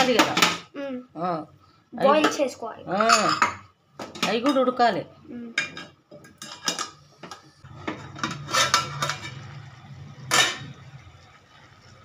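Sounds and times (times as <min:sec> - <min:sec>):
spoon scraping metal pot: 0:05.6 - 0:09.6.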